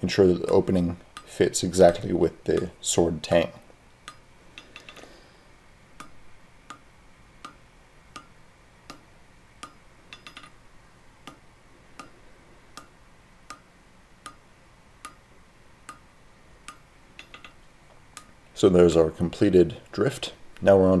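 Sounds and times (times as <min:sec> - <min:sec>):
light hammer taps: 0:08.9 - 0:10.6
hammer striking hot steel on anvil: 0:09.6 - 0:10.6.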